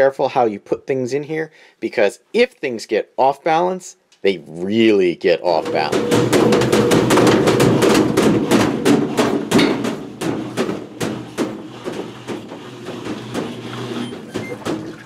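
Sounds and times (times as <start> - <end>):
washer drum banging: 5.5 - 15.0
washing machine hum: 5.6 - 15.0.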